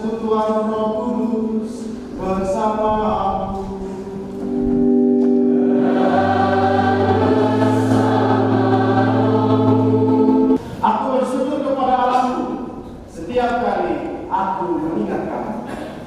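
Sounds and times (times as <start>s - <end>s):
church choir singing: 4.0s - 10.6s
low instrumental accompaniment: 4.1s - 10.6s.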